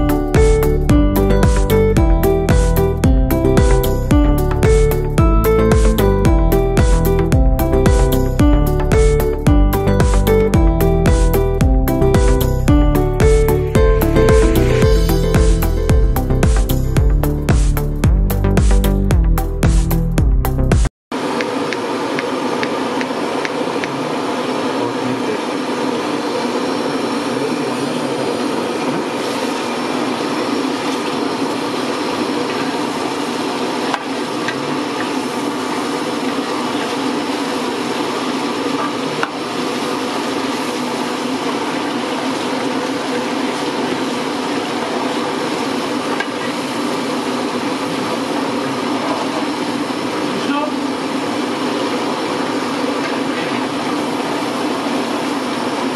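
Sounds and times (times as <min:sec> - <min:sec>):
pot boiling and bubbling: 0:00.0 - 0:19.6, 0:20.5 - 0:55.9.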